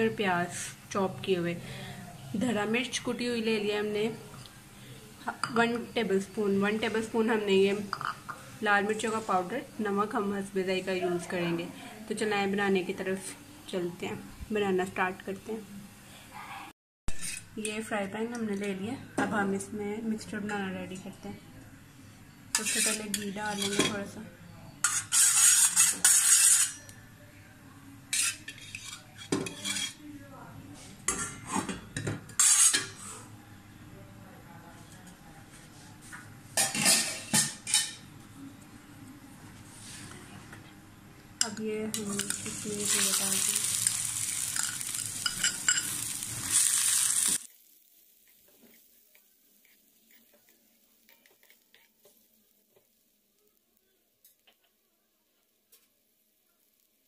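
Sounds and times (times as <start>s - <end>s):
vegetables sizzling in a pan: 0.0s - 1.6s, 2.2s - 16.3s, 22.1s - 24.2s, 24.8s - 27.0s, 28.1s - 30.0s, 31.0s - 33.3s, 41.0s - 57.0s
spoon scraping metal pan: 17.1s - 17.5s, 22.5s - 24.0s, 24.8s - 26.9s, 28.1s - 30.0s, 31.1s - 33.2s, 41.4s - 47.4s.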